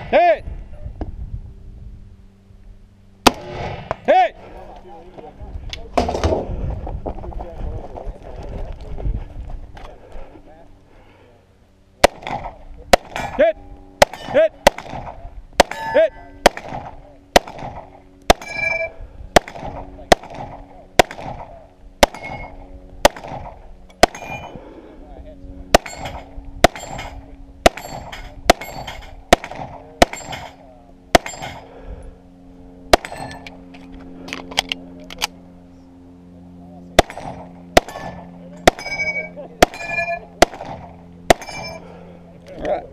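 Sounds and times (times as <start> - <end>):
pistol shots: 3.2 - 4.0, 12.0 - 13.4, 14.0 - 18.7, 19.4 - 24.5, 25.7 - 31.6, 32.9 - 33.4, 37.0 - 41.8
ring of struck steel: 15.6 - 16.4, 18.4 - 19.0, 22.1 - 22.6, 24.1 - 24.6, 25.8 - 29.2, 30.1 - 30.6, 31.2 - 31.7, 33.0 - 33.5, 37.0 - 40.3, 41.3 - 41.9.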